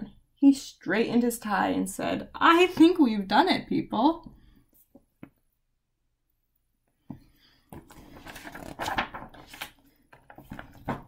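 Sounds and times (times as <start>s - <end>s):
paper rustling and flapping: 7.8s - 11.0s.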